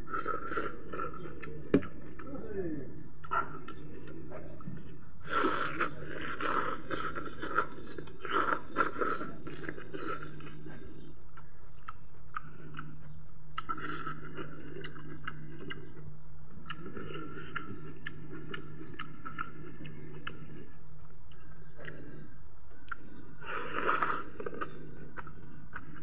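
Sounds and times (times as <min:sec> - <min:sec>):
person chewing and crunching food: 0:00.0 - 0:02.4, 0:03.2 - 0:26.0
wet mouth clicks: 0:16.6 - 0:26.0.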